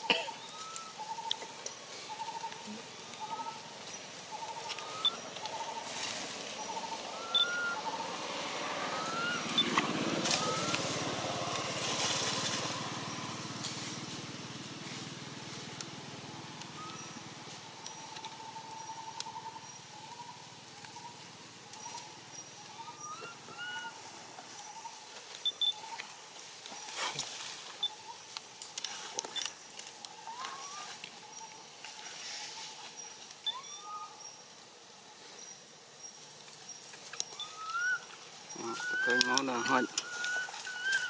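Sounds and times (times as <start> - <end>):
forest ambience: 0.0 - 41.0
baby monkey squeaky calls: 6.8 - 8.0, 33.5 - 34.1, 37.4 - 38.1, 38.7 - 41.0.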